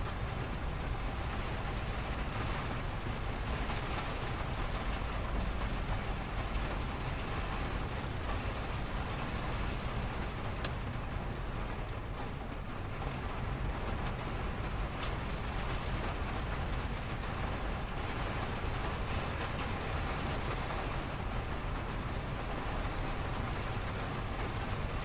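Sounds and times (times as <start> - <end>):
freeway traffic rumble: 0.0 - 25.0
steady rain falling: 0.0 - 25.0.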